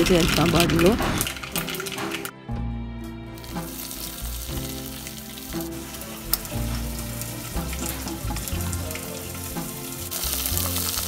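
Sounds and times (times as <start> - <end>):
onions sizzling in oil: 3.4 - 11.0
sharp crackles: 3.4 - 11.0.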